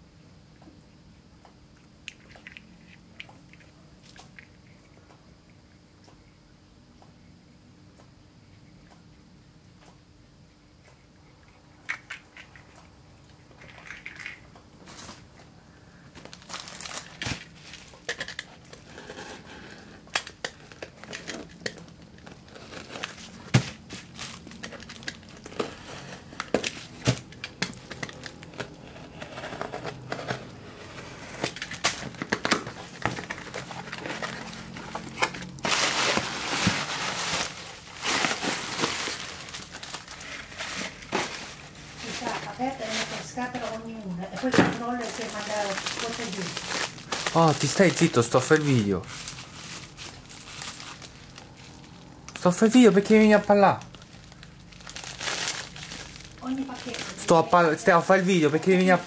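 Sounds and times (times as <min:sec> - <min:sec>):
packing material crinkling: 0:16.1 - 0:59.0.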